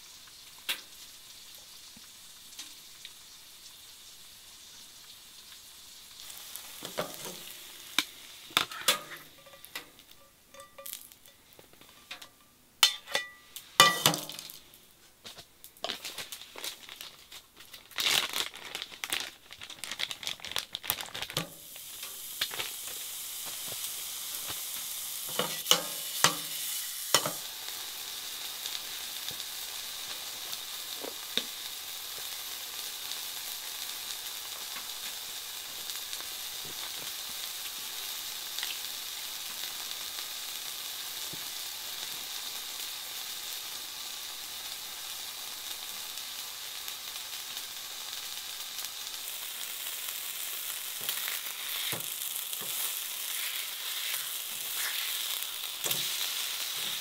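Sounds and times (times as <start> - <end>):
patty sizzling in a frying pan: 0.0 - 57.0
plastic bag crinkling: 15.8 - 23.8, 50.6 - 57.0.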